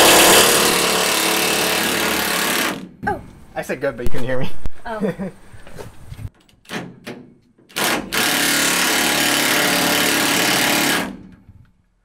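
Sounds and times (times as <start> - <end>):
cordless power tool running: 0.0 - 2.8, 7.8 - 11.1.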